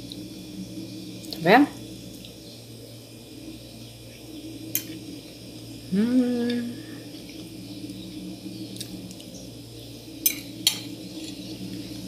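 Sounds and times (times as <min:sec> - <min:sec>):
short voiced hum: 0:05.9 - 0:07.1.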